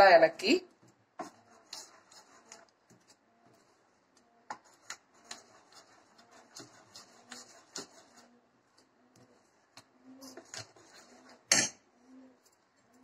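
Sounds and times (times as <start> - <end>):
spoon scraping a bowl: 1.2 - 3.8, 4.5 - 8.3, 9.2 - 11.8.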